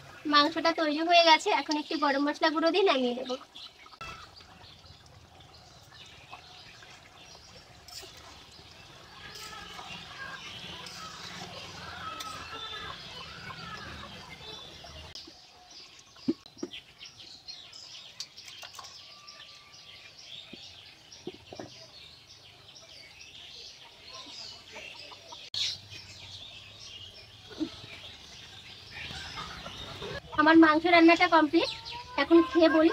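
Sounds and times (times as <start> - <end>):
small birds chirping: 0.0 - 32.9
chickens clucking: 9.3 - 15.2, 23.8 - 25.5, 28.9 - 30.4.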